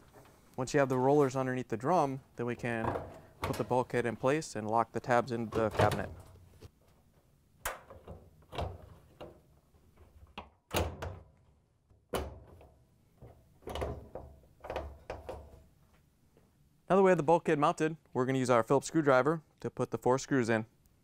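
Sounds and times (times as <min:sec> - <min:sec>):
sheet metal knocks and clunks: 0:02.8 - 0:03.8.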